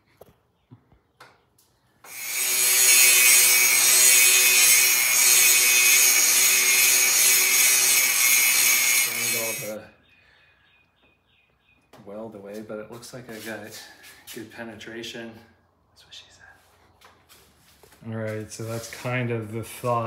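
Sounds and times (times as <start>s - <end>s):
angle grinder grinding metal: 2.0s - 9.8s.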